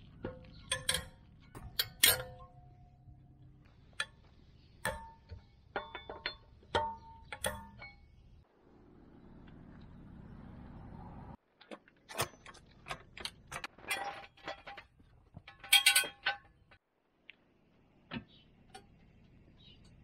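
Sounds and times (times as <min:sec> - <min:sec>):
metal tools clinking: 0:00.1 - 0:08.2, 0:12.1 - 0:16.8.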